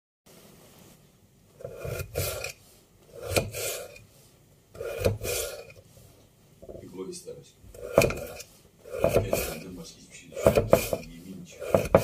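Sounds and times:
knife slicing raw potato: 0:01.6 - 0:04.0, 0:04.8 - 0:05.8, 0:07.7 - 0:12.0.

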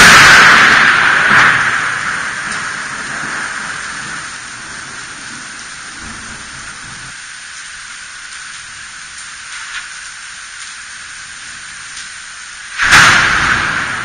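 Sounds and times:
rain hissing: 0:00.0 - 0:14.0
thunder rumbling: 0:00.0 - 0:14.0.

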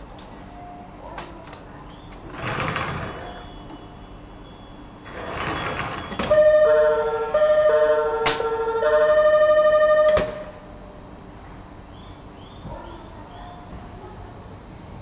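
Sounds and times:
train music horn melody: 0:06.2 - 0:10.9.

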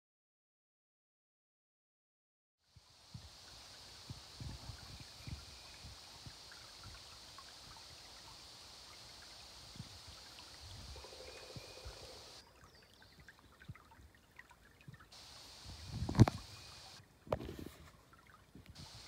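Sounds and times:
steady hiss: 0:02.6 - 0:12.4, 0:15.1 - 0:17.8, 0:18.6 - 0:19.0
creek trickling: 0:02.6 - 0:19.0
low thumps on microphone: 0:15.6 - 0:16.6.

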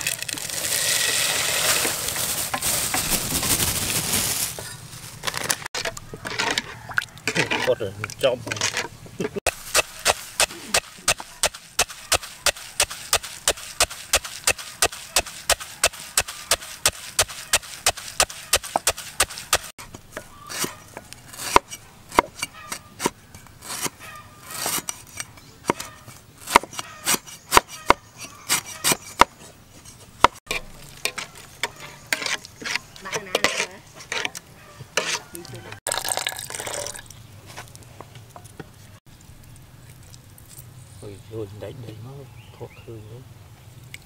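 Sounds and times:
pestle pounding in mortar: 0:09.5 - 0:19.7
cleaver chopping on wooden board: 0:25.7 - 0:29.3.

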